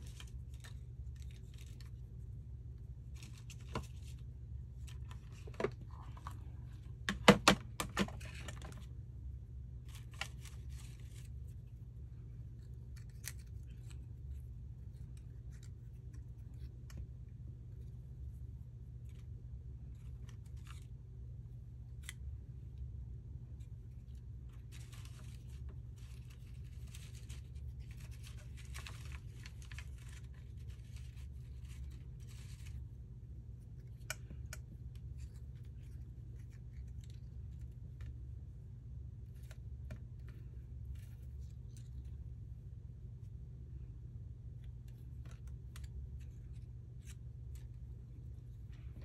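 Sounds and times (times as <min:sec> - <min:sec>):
steady low hum: 0:00.0 - 0:49.0
dry scratching of paper: 0:23.6 - 0:33.0.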